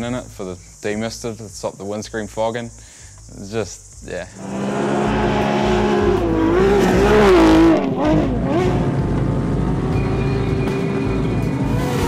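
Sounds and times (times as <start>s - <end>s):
rally car engine revving: 4.4s - 12.0s.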